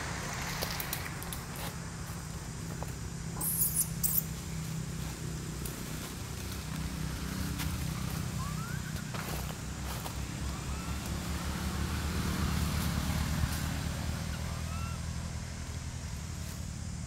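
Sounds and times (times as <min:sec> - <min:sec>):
infant monkey squeak: 0:03.4 - 0:04.3, 0:08.4 - 0:09.1, 0:14.2 - 0:15.1.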